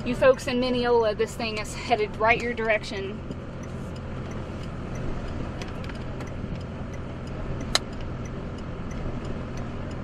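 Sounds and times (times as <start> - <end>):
faint regular ticking: 0.0 - 10.0
vehicle engine idling: 0.0 - 10.0
sharp click: 7.6 - 8.1.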